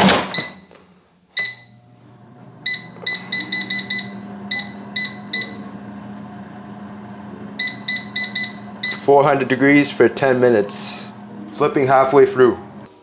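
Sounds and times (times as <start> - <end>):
short high control panel beeps: 1.4 - 1.8, 2.6 - 5.8, 7.6 - 9.1
air fryer fan humming: 1.6 - 12.9.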